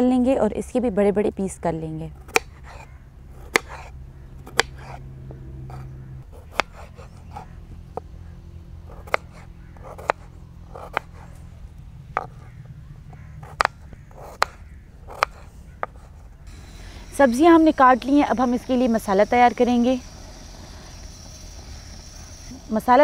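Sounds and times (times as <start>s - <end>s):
low steady hum: 0.0s - 23.0s
knife chopping on wooden board: 2.3s - 5.0s, 5.7s - 8.1s, 8.9s - 11.2s, 13.2s - 16.2s.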